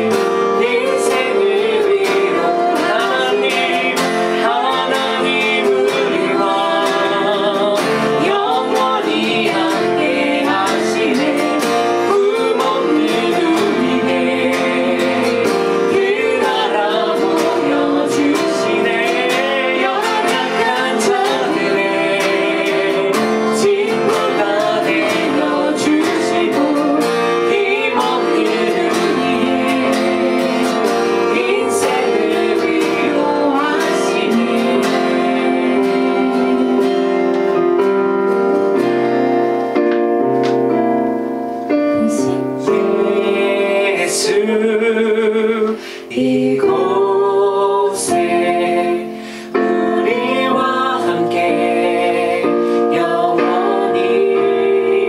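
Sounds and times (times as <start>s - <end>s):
woman singing: 0.0s - 37.2s, 42.0s - 55.0s
acoustic guitar: 0.0s - 55.0s
man singing: 43.0s - 48.8s.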